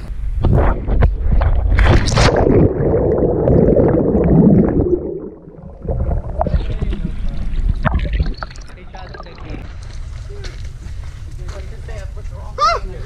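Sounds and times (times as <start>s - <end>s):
wind rushing over camera: 0.0s - 8.5s
underwater rumbling and bubbling: 0.2s - 9.8s
splash into water: 1.2s - 3.6s.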